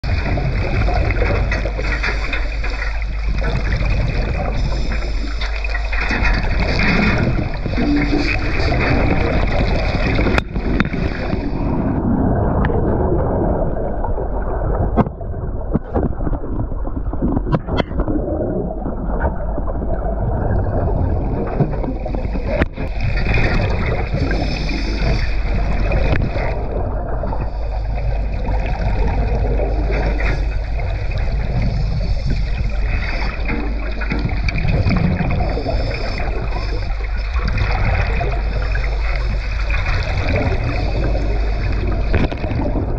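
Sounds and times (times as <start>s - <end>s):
muffled underwater water rush: 0.0s - 42.9s.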